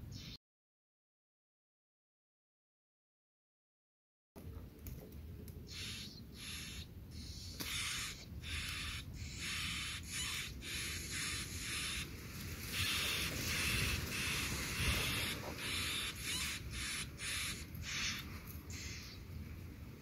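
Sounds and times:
nestlings raspy begging calls: 5.7 - 19.2.

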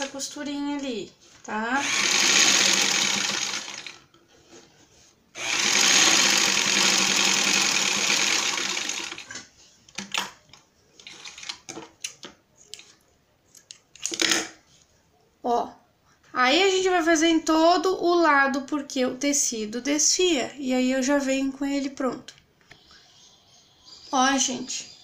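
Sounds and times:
sewing machine stitching: 1.8 - 4.0, 5.4 - 9.4.

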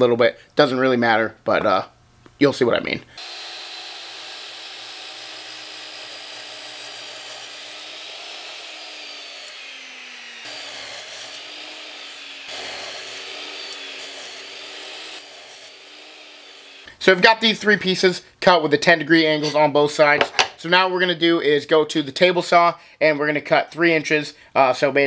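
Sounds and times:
miter saw cutting wood: 3.2 - 16.9.

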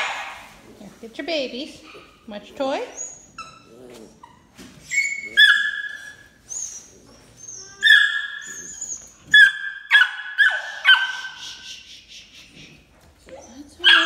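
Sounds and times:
puppy yelping and whining: 2.8 - 11.6, 13.4 - 14.0.

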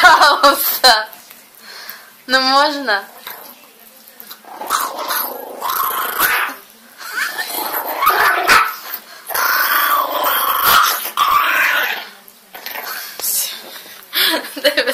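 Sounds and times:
small dog growling: 3.2 - 3.6, 4.3 - 13.2.

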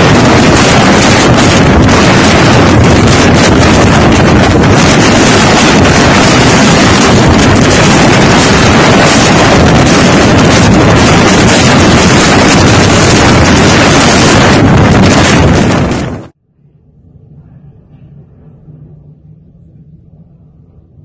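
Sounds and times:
wind buffeting microphone: 0.0 - 16.4.

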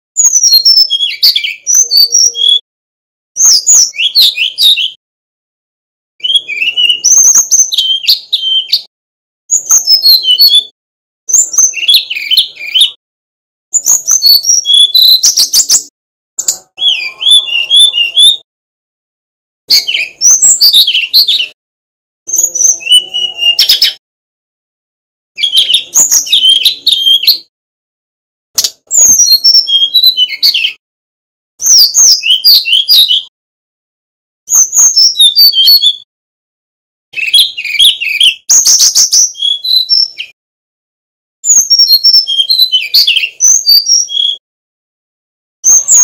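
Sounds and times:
bird singing whistled phrases: 0.2 - 2.6, 3.4 - 5.0, 6.2 - 8.9, 9.5 - 10.7, 11.3 - 13.0, 13.8 - 18.4, 19.7 - 21.6, 22.3 - 24.0, 25.4 - 27.5, 28.6 - 30.8, 31.6 - 33.3, 34.5 - 36.1, 37.2 - 40.4, 41.5 - 44.4, 45.6 - 46.0.

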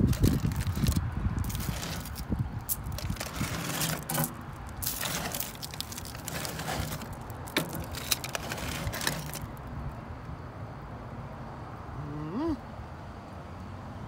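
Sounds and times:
aluminium foil crinkling: 0.0 - 9.6.

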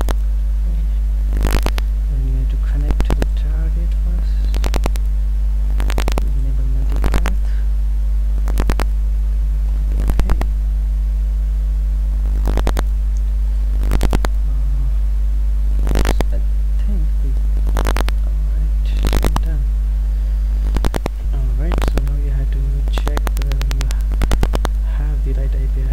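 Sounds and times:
faint steady tones: 0.0 - 25.9
microphone electrical hum: 0.0 - 25.9.

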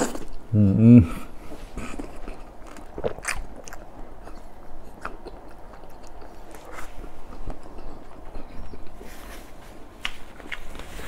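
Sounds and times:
chewing crispy fish: 1.8 - 9.0.

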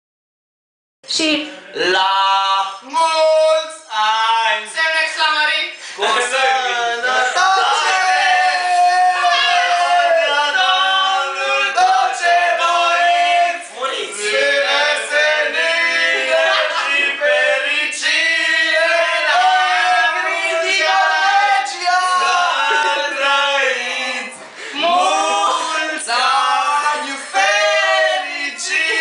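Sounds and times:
group singing unaccompanied: 6.0 - 29.0.

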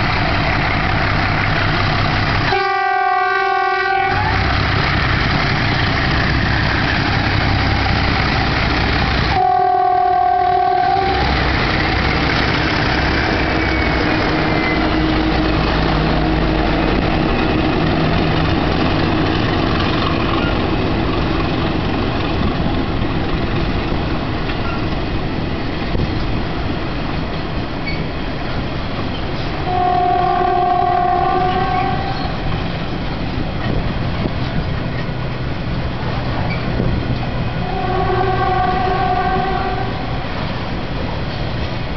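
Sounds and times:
freight train rumbling past: 0.0 - 41.9
locomotive horn: 2.5 - 4.5, 9.3 - 11.5, 29.6 - 32.4, 37.6 - 40.2.

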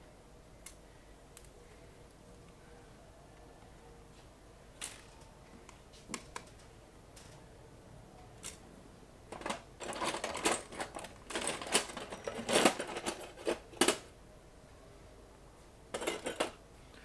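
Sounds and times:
laptop parts clicking and rattling: 9.3 - 14.1, 15.9 - 16.6.

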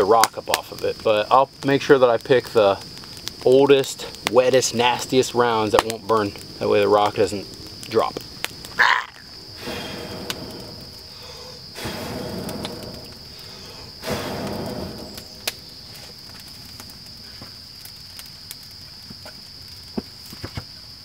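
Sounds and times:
insect trill: 0.0 - 21.0
person blowing into campfire: 8.8 - 16.2.

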